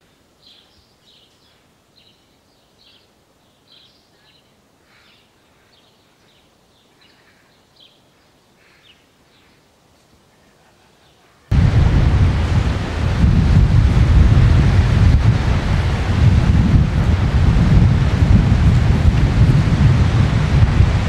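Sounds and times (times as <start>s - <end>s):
faint bird chirps: 0.1s - 11.5s.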